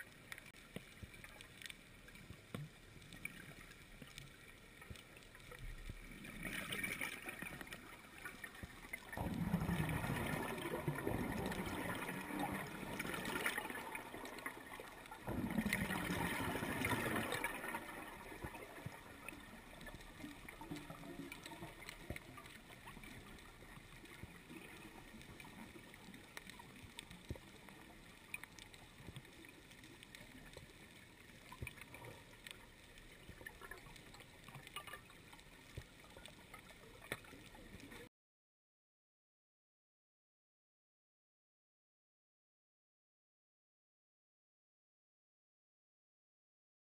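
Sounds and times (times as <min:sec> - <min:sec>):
faint clicks: 0:00.0 - 0:38.1
low steady water hiss: 0:00.0 - 0:38.1
underwater gas bubbling bursts: 0:06.0 - 0:26.7.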